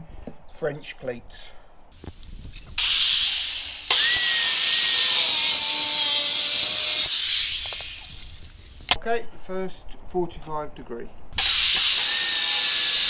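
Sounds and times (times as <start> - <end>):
power saw cutting wood: 2.8 - 8.5, 11.4 - 13.0.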